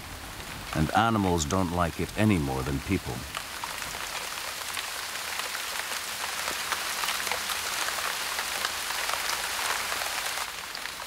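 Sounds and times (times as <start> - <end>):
rain falling: 0.0 - 11.0.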